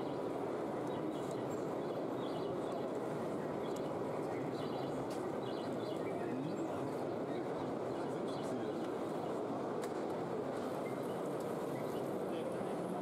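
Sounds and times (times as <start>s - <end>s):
room background din: 0.0s - 13.0s.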